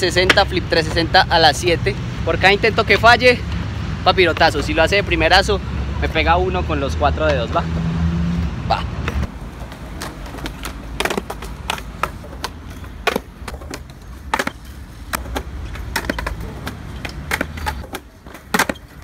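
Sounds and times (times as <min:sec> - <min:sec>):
skateboard wheels rolling on concrete: 0:00.0 - 0:19.0
skateboard clacks and slaps: 0:09.1 - 0:19.0.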